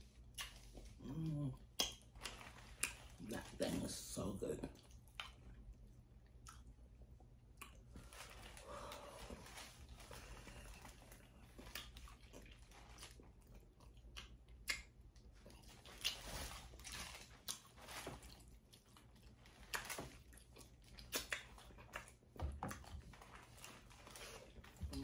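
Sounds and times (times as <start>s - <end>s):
person chewing and smacking: 0.0s - 3.9s, 4.7s - 25.0s.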